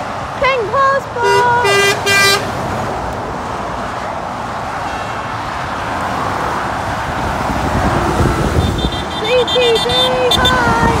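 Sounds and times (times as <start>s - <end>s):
traffic passing: 0.0s - 11.0s.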